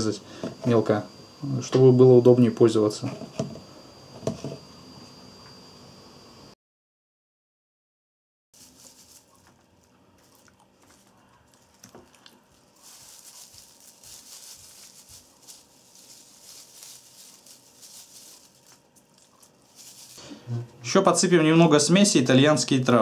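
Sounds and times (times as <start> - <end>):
herbs rubbed over meat: 8.6 - 20.2.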